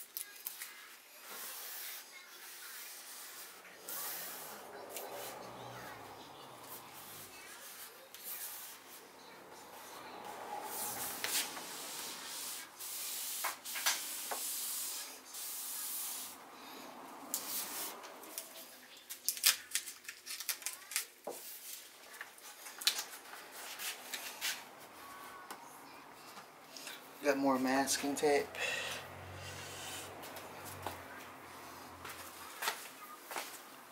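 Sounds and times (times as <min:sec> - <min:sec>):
tape being peeled and rubbed: 0:00.0 - 0:05.4, 0:10.6 - 0:16.4, 0:17.3 - 0:24.9.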